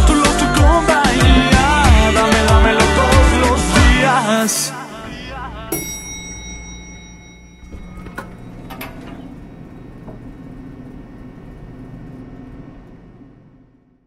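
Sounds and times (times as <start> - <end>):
low steady hum: 4.3 - 14.0
elevator doors sliding shut: 7.0 - 11.9.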